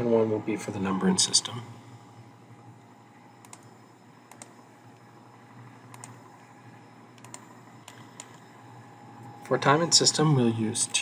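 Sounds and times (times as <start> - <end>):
faint low hum: 0.0 - 11.0
computer mouse clicking: 3.4 - 3.7, 4.3 - 4.6, 5.9 - 6.2, 7.2 - 8.5.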